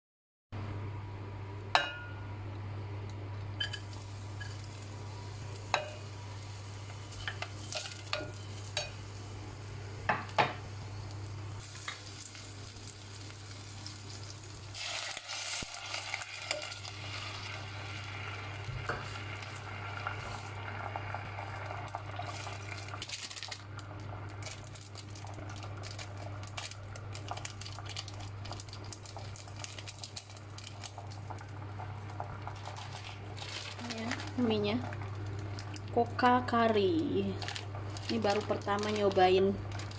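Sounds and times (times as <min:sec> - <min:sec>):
steady low hum: 0:00.6 - 0:14.8
vegetables sizzling in oil: 0:03.6 - 0:39.9.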